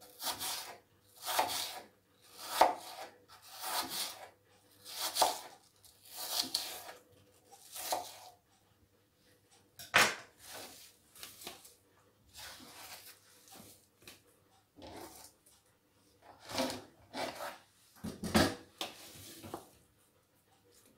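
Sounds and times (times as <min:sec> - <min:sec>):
knife slicing apple on cutting board: 0:00.1 - 0:07.0, 0:07.6 - 0:08.4, 0:09.8 - 0:11.7, 0:12.3 - 0:13.7, 0:14.8 - 0:15.3, 0:16.4 - 0:17.6
rustling of apple pieces: 0:10.4 - 0:14.2.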